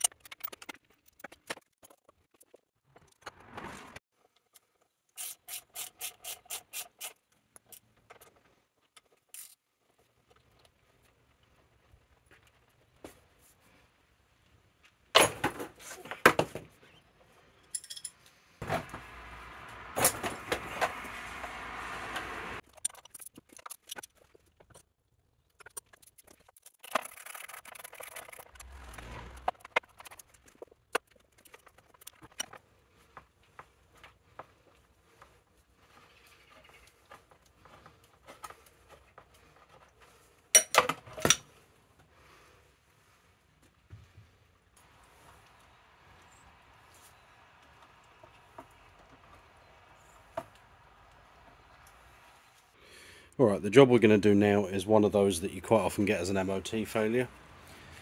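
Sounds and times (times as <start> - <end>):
light metallic clinks: 17.6 - 18.4.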